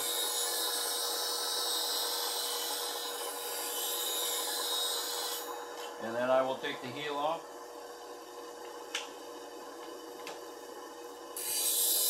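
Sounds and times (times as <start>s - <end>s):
grinder motor hum: 0.0s - 12.0s
grinding wheel hiss: 11.4s - 12.0s.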